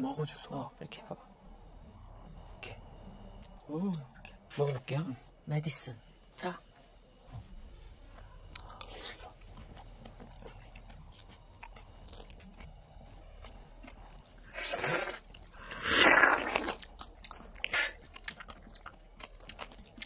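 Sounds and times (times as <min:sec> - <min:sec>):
mouth and handling noises: 0:07.1 - 0:20.0
loud fruit eating bursts: 0:08.6 - 0:20.0.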